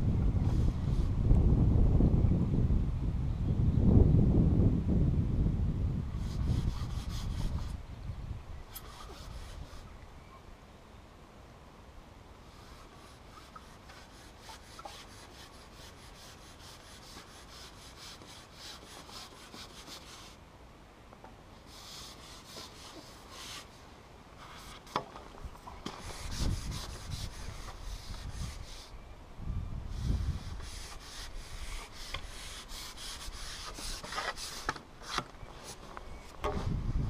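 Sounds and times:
fishing pole rubbing and scraping: 6.2 - 7.8, 8.7 - 10.0, 12.5 - 20.4, 21.7 - 23.8, 24.4 - 29.0, 29.9 - 36.3.

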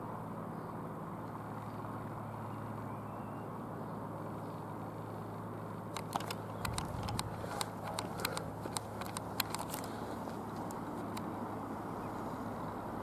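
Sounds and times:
light aircraft engine droning: 0.0 - 13.0
sharp clicks: 5.9 - 11.3.

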